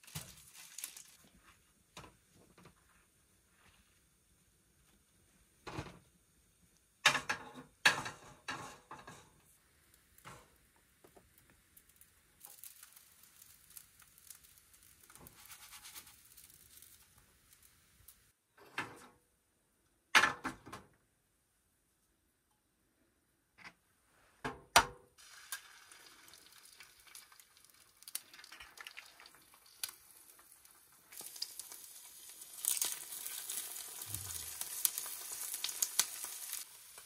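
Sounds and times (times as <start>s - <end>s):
objects knocking and clattering: 7.0s - 9.4s
soft hiss: 9.3s - 18.4s, 25.2s - 37.0s.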